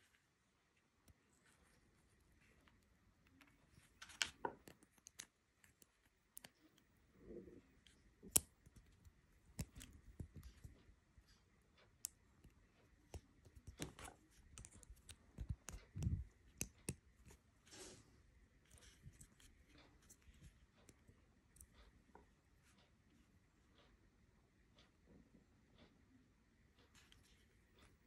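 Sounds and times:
small plastic clicks and scrapes: 2.4s - 6.9s, 7.8s - 10.8s, 11.8s - 17.4s.

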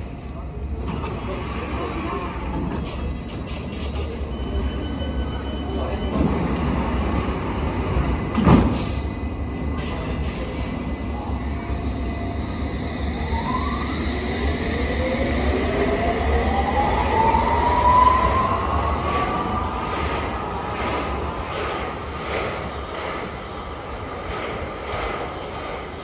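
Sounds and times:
train doors thudding shut: 8.2s - 9.1s.

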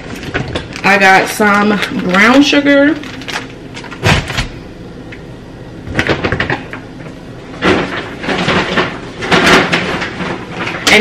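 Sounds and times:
packages knocking and clattering: 5.9s - 6.8s, 7.5s - 11.0s.

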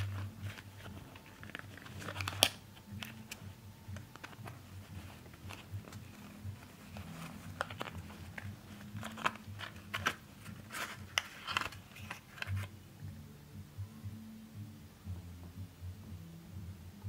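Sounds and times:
plastic case clicks and rustles: 0.0s - 12.7s.

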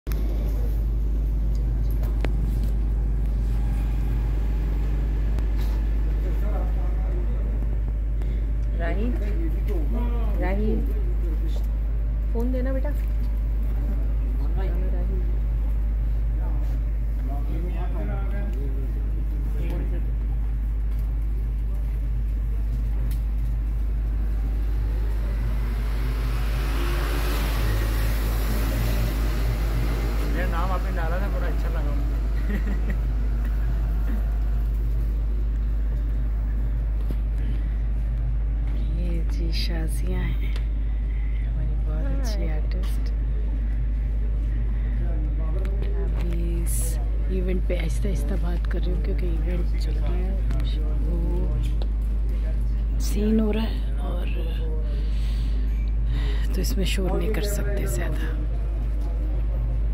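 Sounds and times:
low rumbling hum: 0.0s - 59.9s.

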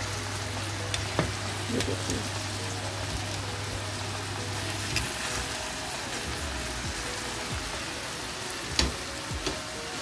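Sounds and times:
chicken sizzling in hot oil: 0.0s - 10.0s.

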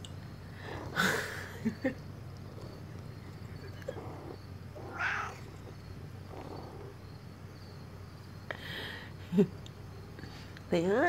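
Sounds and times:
steady low hum: 0.0s - 11.0s
cats making faint vocal sounds: 0.3s - 10.7s
cat chirp: 4.8s - 5.5s.

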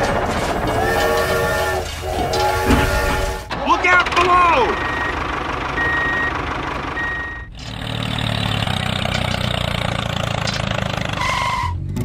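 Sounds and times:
engine idling: 0.0s - 12.0s
reversing alarm beeping: 0.7s - 3.5s, 4.3s - 7.5s.

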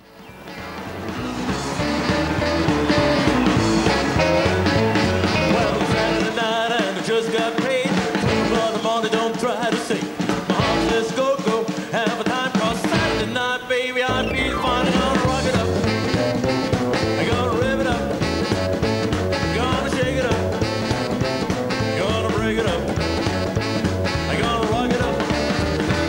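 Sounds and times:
upright bass: 0.0s - 6.5s, 8.2s - 8.7s, 10.5s - 11.1s, 12.8s - 13.5s, 14.1s - 26.0s
drums: 0.0s - 26.0s
electric guitars: 0.0s - 26.0s
saxophone: 0.3s - 7.1s, 8.1s - 9.1s, 12.9s - 26.0s.

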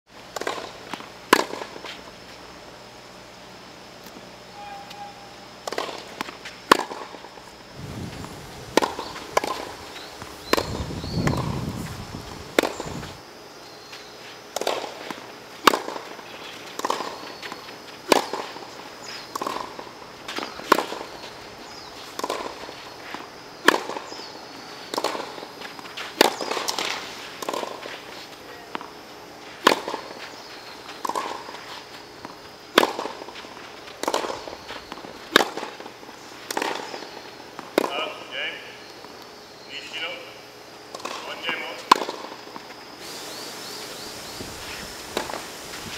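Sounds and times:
racket striking tennis ball: 0.3s - 1.9s, 5.6s - 7.3s, 8.1s - 13.2s, 14.5s - 18.6s, 19.2s - 24.2s, 24.9s - 28.0s, 29.6s - 30.2s, 31.0s - 37.9s, 40.9s - 42.7s, 45.1s - 45.4s
ball bouncing on hard court: 8.1s - 11.7s.

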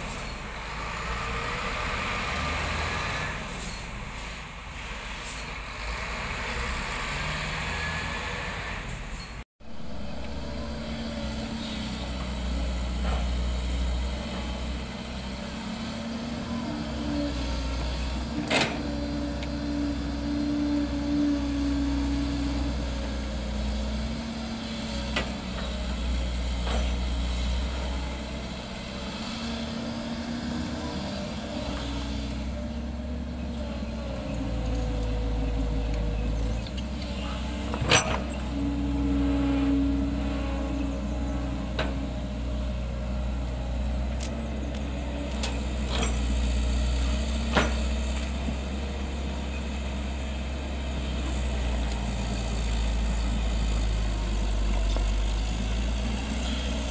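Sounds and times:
excavator diesel engine rumbling: 0.0s - 56.9s.

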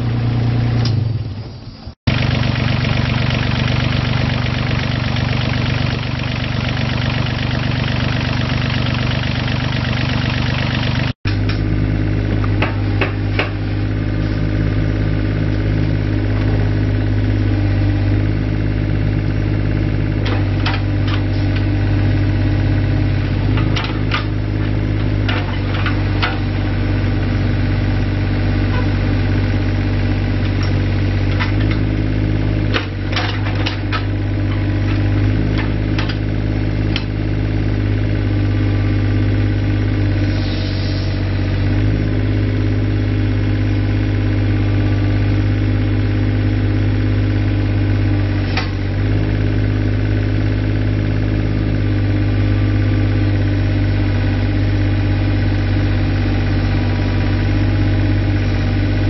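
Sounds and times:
excavator diesel engine running: 0.0s - 59.0s
sharp clicks and knocks: 32.7s - 36.2s.

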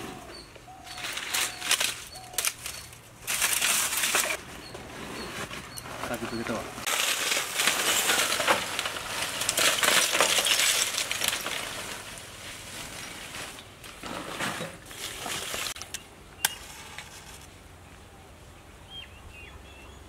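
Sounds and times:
charcoal clinking: 0.8s - 17.1s
charcoal clattering onto grill: 0.9s - 4.4s, 5.5s - 16.6s.

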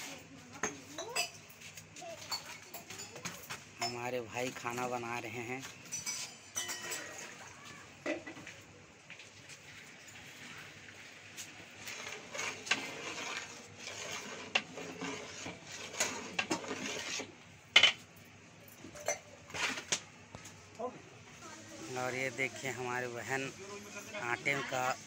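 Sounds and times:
ladle scraping and clinking in pot: 5.9s - 7.4s, 11.8s - 18.0s.

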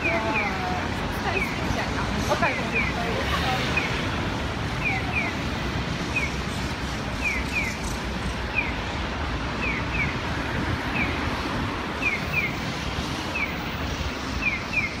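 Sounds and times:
street noise: 0.0s - 15.0s
crossing signal bird-call chirps: 4.7s - 6.5s, 7.1s - 8.9s, 9.6s - 10.2s, 14.3s - 15.0s.

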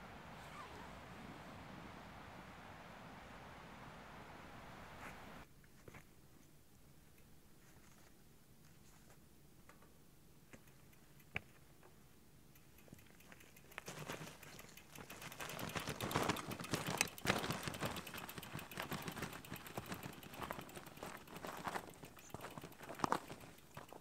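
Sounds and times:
footsteps crunching on rocky trail: 13.8s - 24.0s.

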